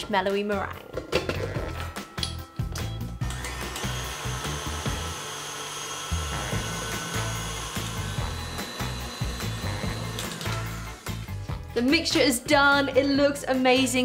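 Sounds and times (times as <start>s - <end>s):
stand mixer motor whine: 3.3s - 11.3s.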